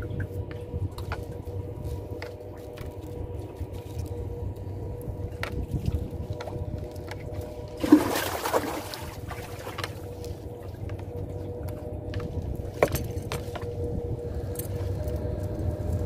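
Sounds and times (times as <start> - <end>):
boat engine low hum: 0.0 - 16.0
water splash: 7.8 - 10.0.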